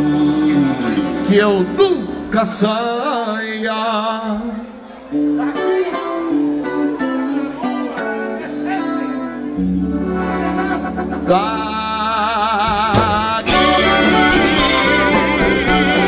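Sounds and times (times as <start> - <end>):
accordion melody: 0.0 - 2.6, 6.2 - 16.0
electric guitar: 0.0 - 16.0
bass and drums: 11.1 - 16.0.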